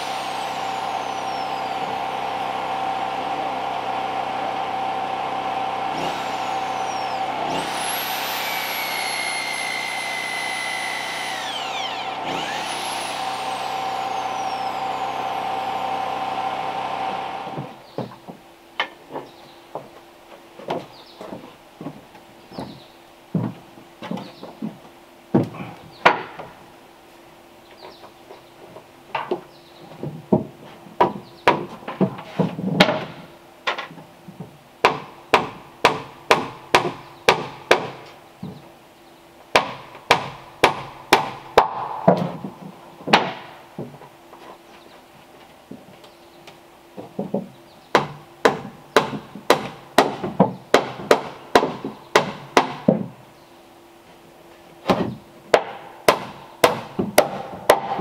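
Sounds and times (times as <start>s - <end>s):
hammering on wood: 22.6s - 26.5s, 29.1s - 32.2s, 34.8s - 38.6s, 39.5s - 44.0s, 47.0s - 53.2s, 54.9s - 58.0s.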